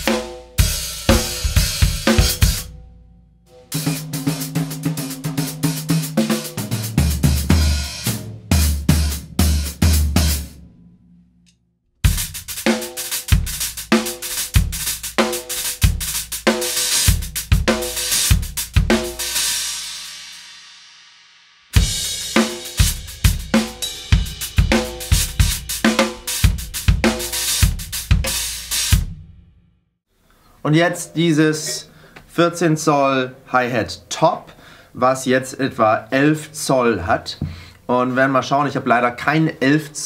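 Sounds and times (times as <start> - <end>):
cymbal ringing: 0.0 - 5.7, 21.8 - 27.4
drum kit groove: 0.0 - 10.8, 12.0 - 20.6, 21.8 - 29.4.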